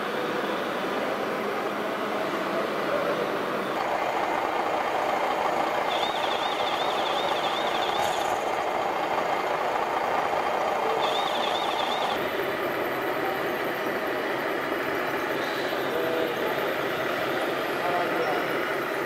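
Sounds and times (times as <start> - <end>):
simulated diesel engine running: 0.0 - 19.0
warbling electronic alarm tone: 5.2 - 8.4, 11.0 - 12.2.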